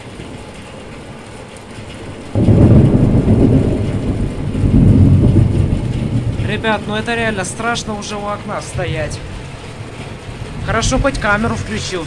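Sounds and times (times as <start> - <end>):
deep thunder rumble: 0.0 - 12.0
faint steady hiss: 6.2 - 12.0.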